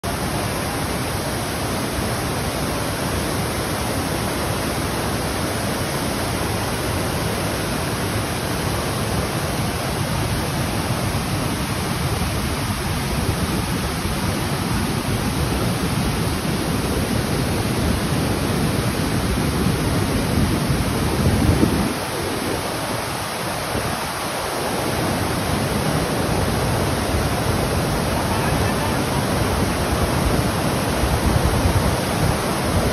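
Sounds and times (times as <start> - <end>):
waterfall rushing over rocks: 0.0 - 32.9.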